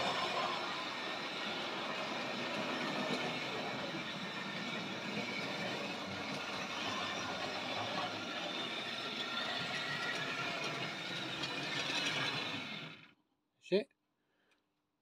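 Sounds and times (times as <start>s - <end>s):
model train motor whirring: 0.0s - 13.1s.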